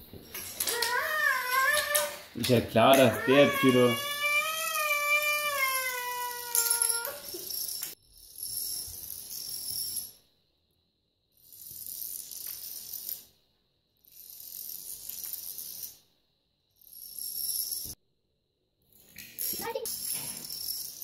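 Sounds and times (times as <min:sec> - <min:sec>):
plastic dominoes toppling on wood: 0:00.3 - 0:07.9, 0:14.1 - 0:16.0.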